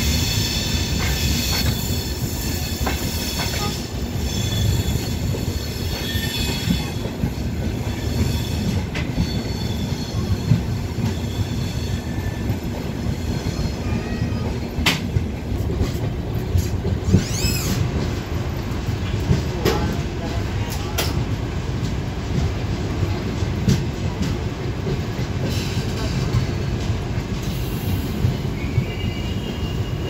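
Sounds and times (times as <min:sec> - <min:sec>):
train wheels rumbling on rail: 0:00.0 - 0:30.0
high-pitched wheel squeal: 0:00.2 - 0:07.0, 0:17.1 - 0:17.9.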